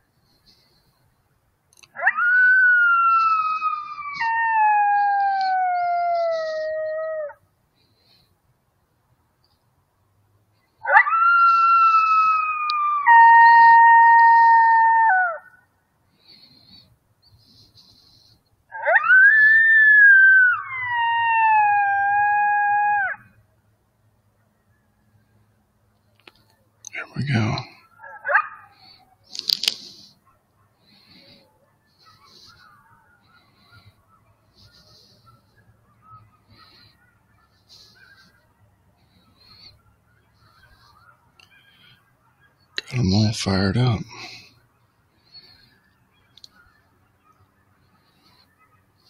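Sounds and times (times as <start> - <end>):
coyote howl: 1.9 - 7.4, 10.8 - 15.6, 17.8 - 23.4, 27.4 - 28.9.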